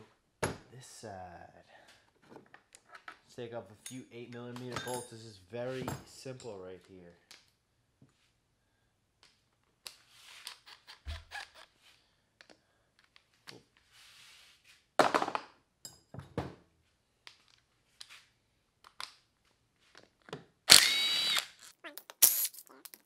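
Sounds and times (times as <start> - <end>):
metal tools clinking: 3.8 - 6.6.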